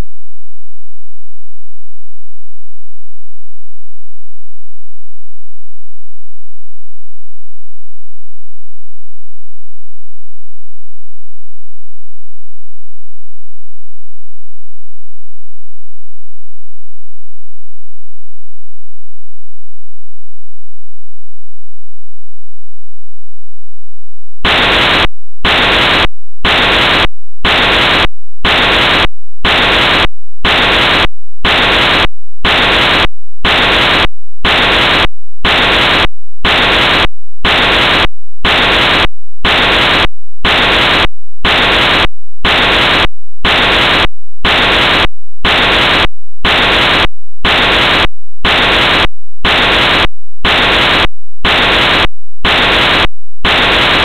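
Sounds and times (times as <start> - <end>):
harsh static hiss bursts: 24.4 - 54.0.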